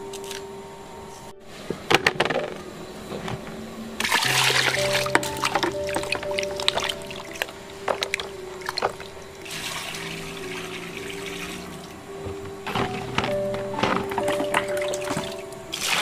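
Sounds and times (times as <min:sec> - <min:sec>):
water splashing in metal basin: 0:04.0 - 0:12.0
water pouring onto concrete: 0:09.4 - 0:11.9.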